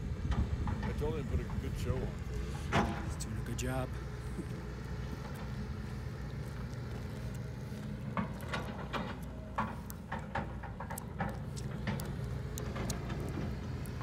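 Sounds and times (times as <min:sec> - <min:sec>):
excavator diesel engine running: 0:00.0 - 0:14.0.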